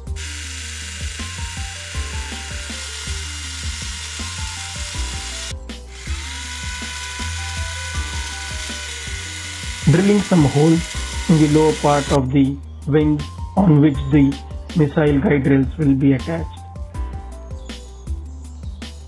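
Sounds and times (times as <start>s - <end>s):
small electric drill whirring: 0.0s - 12.2s
background music: 0.0s - 19.0s.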